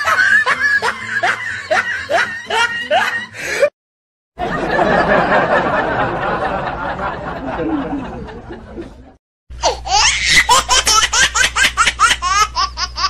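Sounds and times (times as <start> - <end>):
high-pitched rapid laugh: 0.0 - 3.3, 9.7 - 13.0
person laughing: 0.0 - 3.7.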